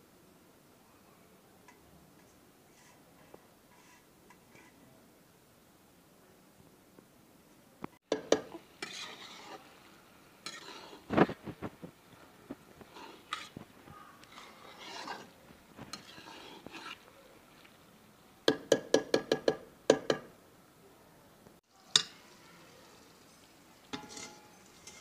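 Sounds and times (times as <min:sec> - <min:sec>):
metal spatula scraping a pan: 0:02.7 - 0:04.8, 0:08.1 - 0:17.8, 0:21.8 - 0:25.0
spatula clanking against pan: 0:08.1 - 0:09.4, 0:23.9 - 0:25.0
steel lid clanking onto pan: 0:23.9 - 0:25.0.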